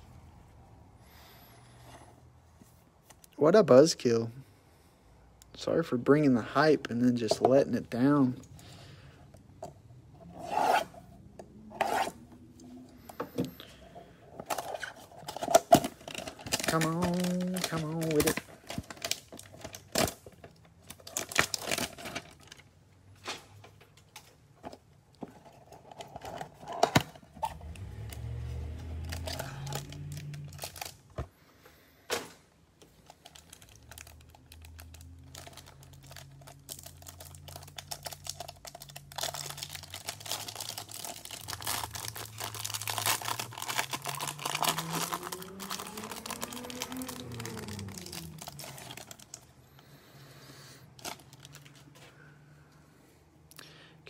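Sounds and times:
plastic wrapper crinkling: 14.5 - 22.7, 29.0 - 31.1, 32.8 - 49.6, 51.0 - 52.0.

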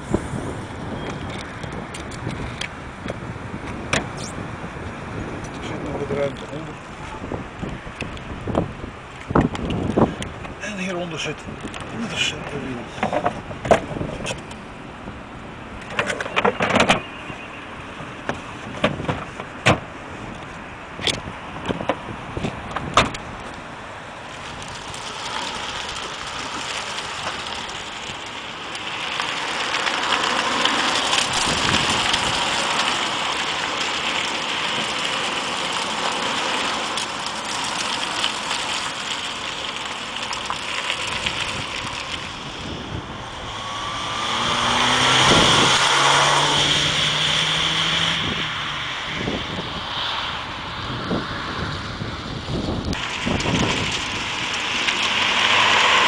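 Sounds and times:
wind on the microphone: 0.0 - 10.6, 11.2 - 15.3, 16.2 - 23.6, 31.2 - 32.6, 41.0 - 54.7
car engine and tyre noise: 0.0 - 56.0.

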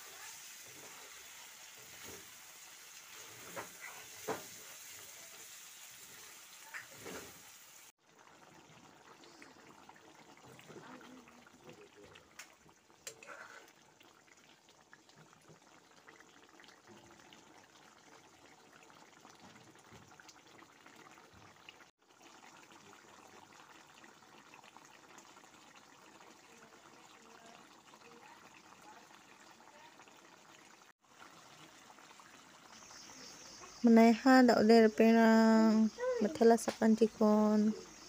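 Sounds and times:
curry bubbling and sizzling in a pan: 0.0 - 38.0.

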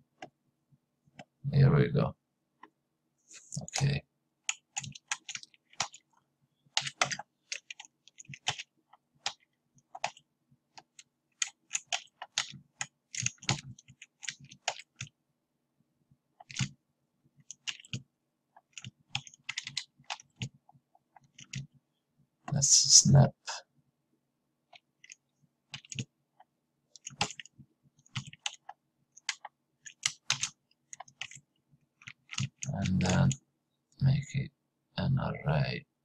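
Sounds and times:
keyboard keys clicking: 4.5 - 6.1, 6.8 - 10.2, 10.8 - 15.1, 16.4 - 16.7, 17.5 - 18.0, 18.6 - 21.7, 24.7 - 26.1, 27.0 - 31.4, 32.0 - 33.4
faint low hum: 14.9 - 36.0.

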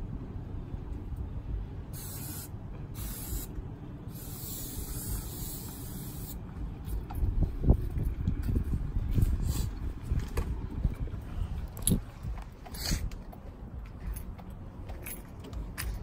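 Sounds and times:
aerosol spray can hissing: 2.0 - 3.5, 4.1 - 6.4.

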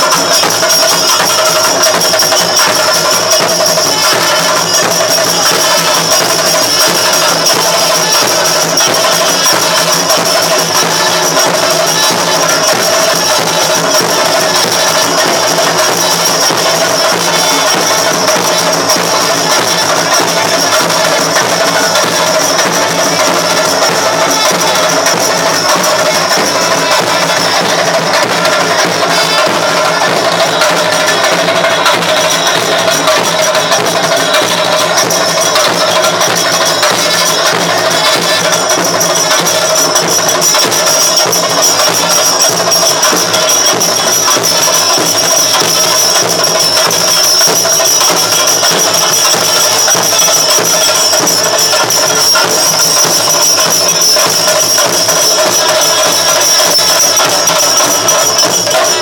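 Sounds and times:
cymbals clashing: 0.0 - 59.0
drums: 0.0 - 59.0.

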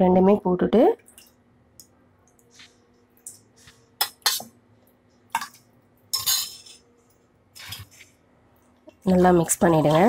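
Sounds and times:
steel spoon clinking on clay pot: 6.1 - 6.7.

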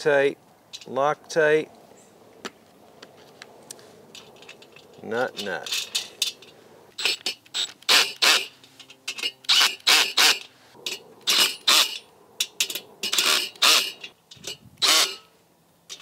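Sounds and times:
ratcheting wrench clicking: 5.7 - 10.5.

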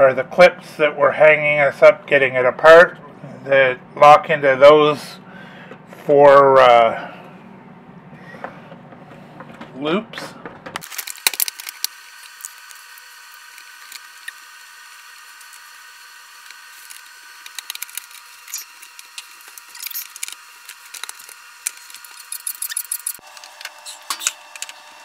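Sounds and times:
faint high hum: 0.0 - 10.6
plastic parts clicking and scraping: 8.4 - 12.7, 16.5 - 24.8
screwdriver being handled: 16.8 - 24.7.

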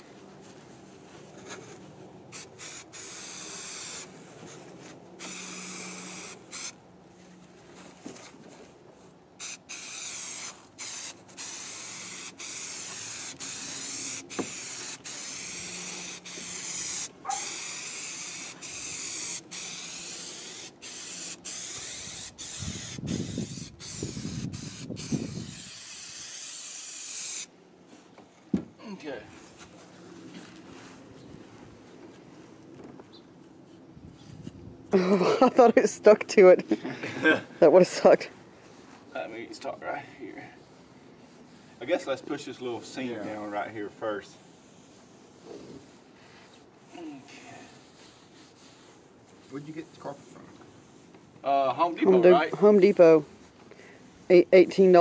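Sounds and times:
aerosol spray hissing: 2.3 - 4.1, 5.2 - 6.8, 9.4 - 27.5.

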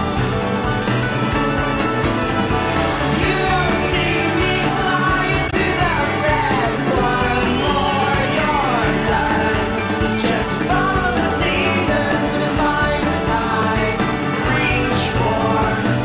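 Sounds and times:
song with singing voice: 0.0 - 16.0.

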